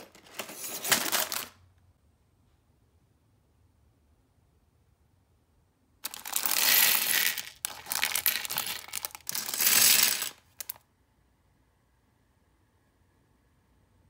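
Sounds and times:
plastic bricks clattering: 0.0s - 1.6s, 6.0s - 10.8s.

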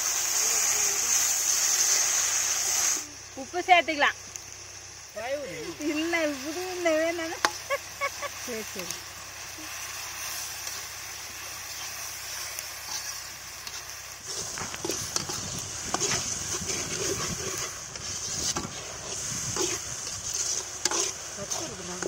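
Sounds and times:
masala sizzling in oil: 0.0s - 22.0s
metal ladle scraping pan: 12.8s - 22.0s.

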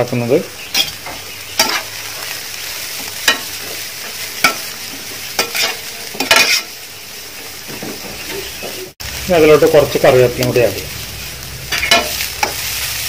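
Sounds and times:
vegetables sizzling in a pan: 0.0s - 13.0s
spatula scraping a pan: 1.6s - 2.3s, 2.9s - 6.8s.

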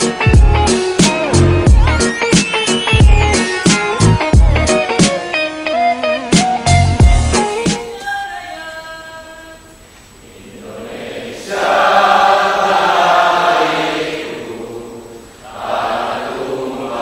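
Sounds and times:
music ringing out: 0.0s - 7.8s
crowd chanting: 10.2s - 17.0s.

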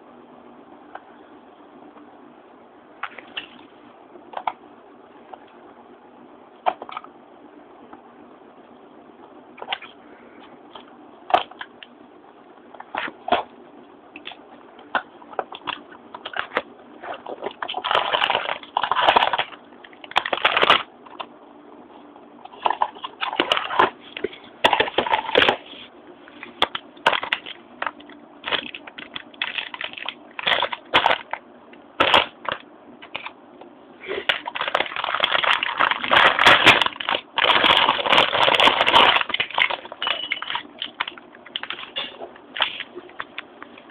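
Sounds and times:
plastic bag crinkling: 14.2s - 21.3s, 22.5s - 31.4s, 32.0s - 33.3s, 34.1s - 43.9s.

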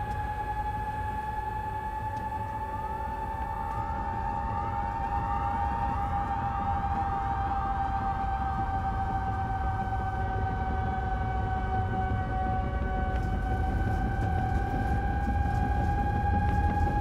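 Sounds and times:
low rumble: 0.0s - 17.0s
sirens wailing: 0.0s - 17.0s
steady high drone: 0.0s - 17.0s.

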